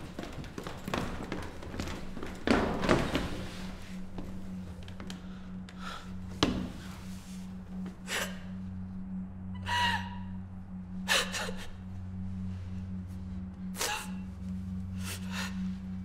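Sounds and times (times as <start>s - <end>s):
low steady hum: 0.0s - 16.0s
woman crying in sobs: 11.0s - 12.0s.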